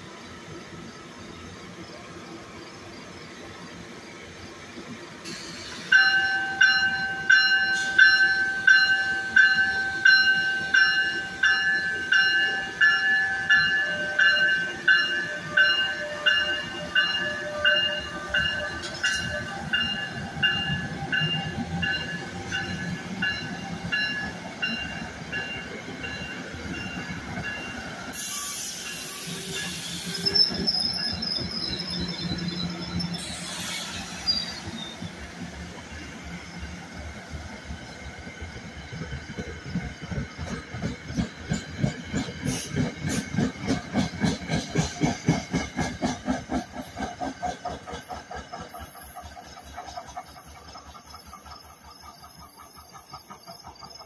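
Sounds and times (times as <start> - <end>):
rumble of passing train cars: 0.0 - 54.0
burst of hiss: 5.2 - 6.0, 28.2 - 30.3, 33.2 - 34.8
locomotive bell ringing: 5.8 - 33.4
high squeal: 27.6 - 35.1.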